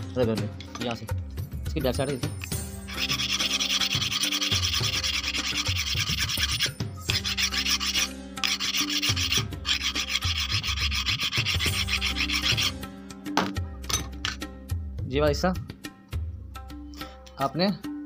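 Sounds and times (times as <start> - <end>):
metal file rasping: 2.9 - 12.8.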